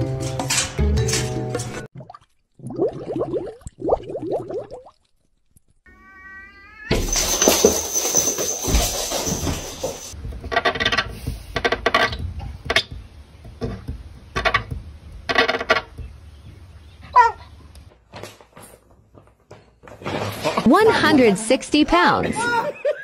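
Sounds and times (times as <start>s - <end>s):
dog barking: 17.1s - 17.5s.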